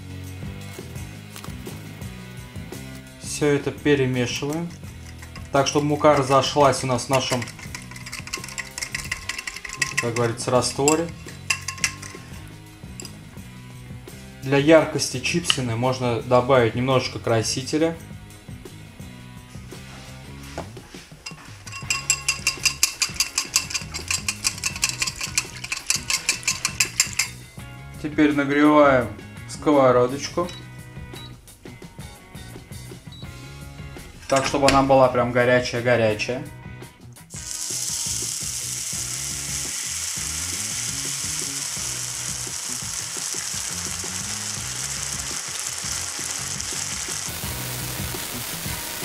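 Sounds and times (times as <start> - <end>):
whisk clinking against bowl: 4.6 - 12.4, 21.2 - 27.4
batter sizzling in a frying pan: 4.9 - 12.5, 37.3 - 49.0.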